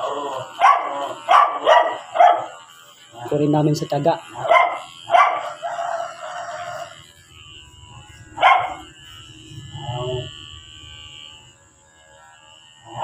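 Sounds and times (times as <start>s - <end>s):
electric hair clippers buzzing: 0.0s - 13.0s
dog barking: 0.5s - 2.6s, 4.4s - 5.6s, 8.4s - 8.9s.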